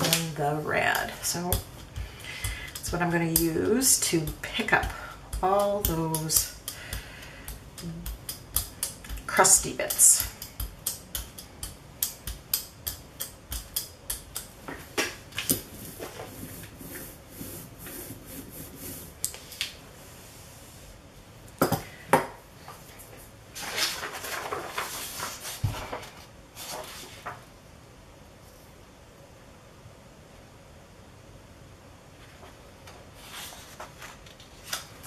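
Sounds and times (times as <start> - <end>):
brayer rolling over tacky paint: 0.0 - 10.2, 15.3 - 19.8.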